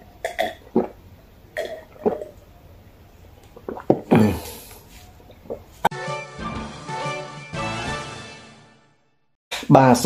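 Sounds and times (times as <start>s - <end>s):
man gulping water: 0.0s - 2.6s, 3.3s - 5.9s.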